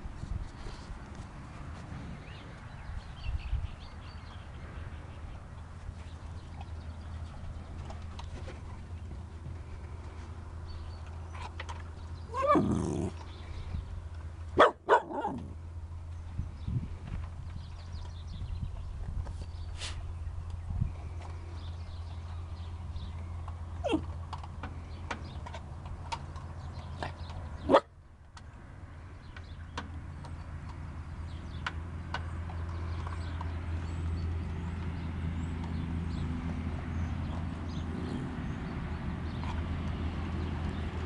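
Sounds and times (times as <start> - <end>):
puppy whining and yipping: 12.3 - 13.2, 23.8 - 24.1.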